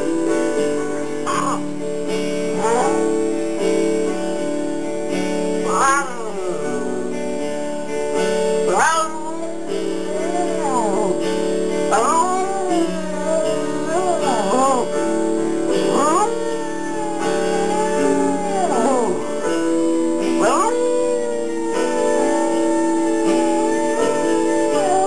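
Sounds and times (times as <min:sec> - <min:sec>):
strummed guitar chords: 0:00.0 - 0:25.0
dog howling: 0:01.3 - 0:01.7, 0:02.5 - 0:03.2, 0:05.6 - 0:07.1, 0:08.6 - 0:25.0.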